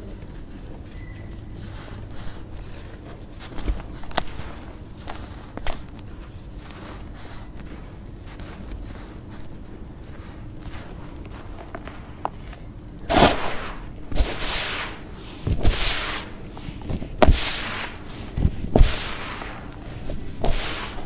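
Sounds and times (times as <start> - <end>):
lumps landing with soft thuds: 10.1 - 21.0
powder pouring hiss: 13.1 - 21.0.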